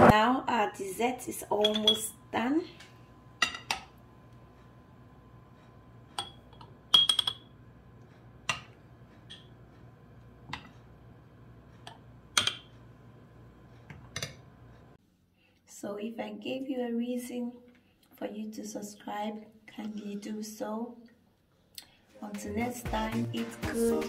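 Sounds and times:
metal spoon clinking on glass: 1.6s - 2.0s, 6.2s - 7.5s.

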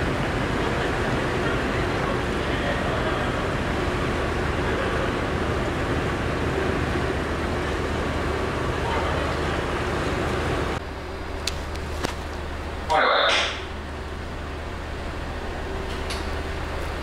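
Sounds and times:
broad rushing noise: 0.0s - 17.0s
ship engine humming: 0.0s - 17.0s.

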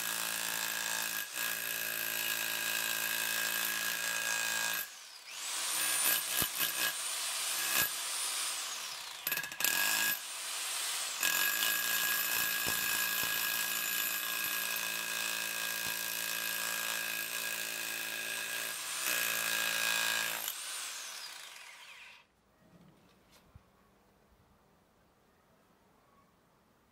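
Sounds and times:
rotary hammer chiselling rock: 8.9s - 10.2s, 10.9s - 20.6s.

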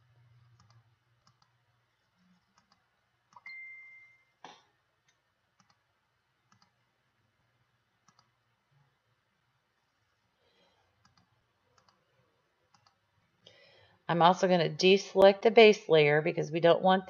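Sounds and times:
computer mouse clicks: 0.4s - 1.6s, 2.3s - 3.5s, 5.1s - 5.8s, 6.5s - 6.8s, 8.0s - 8.4s, 11.0s - 12.0s, 12.7s - 13.0s
high beep: 3.4s - 4.3s.

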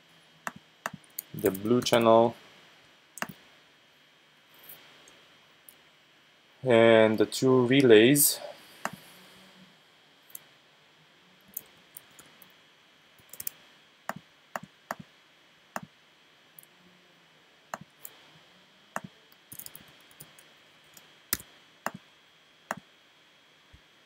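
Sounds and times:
mouse clicking: 0.4s - 2.0s, 3.2s - 3.4s, 13.2s - 15.0s, 19.0s - 20.3s, 21.0s - 22.0s.

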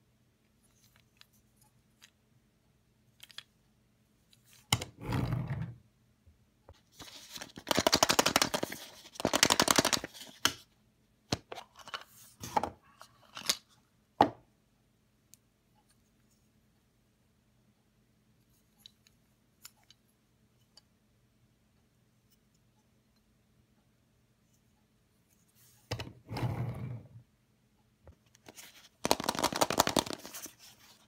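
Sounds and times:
fast plastic rattling: 29.0s - 30.5s.

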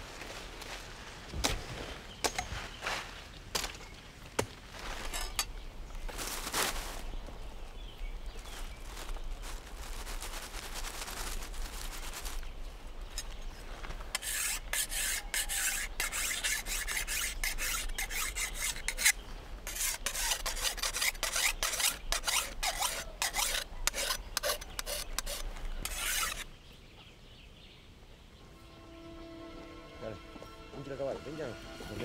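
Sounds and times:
rasping and scraping strokes: 14.1s - 26.4s.

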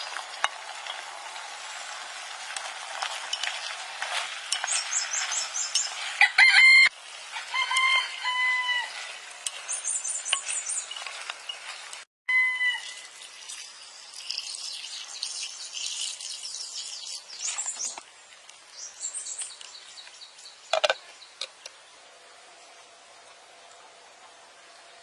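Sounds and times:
birds chirping: 3.3s - 6.8s, 8.0s - 12.0s, 12.9s - 25.0s.

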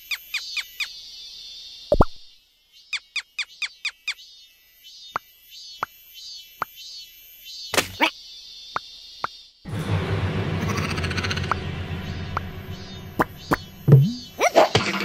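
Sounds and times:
short scuffs: 7.8s - 8.0s.

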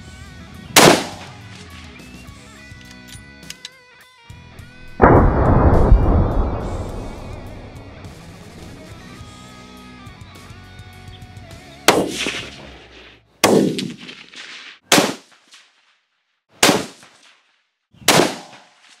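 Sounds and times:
rifle shots: 0.8s - 1.4s, 4.8s - 8.6s, 11.9s - 12.6s, 13.4s - 15.3s, 16.6s - 17.0s, 18.1s - 18.6s.

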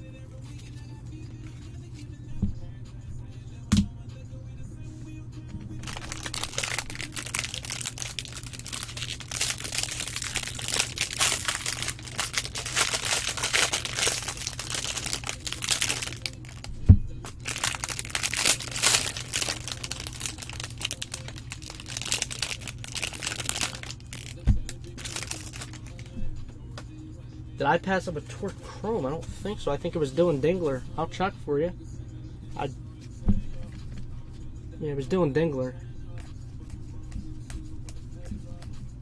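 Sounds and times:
foil wrapper crinkling and tearing: 5.8s - 16.7s, 17.4s - 26.1s.

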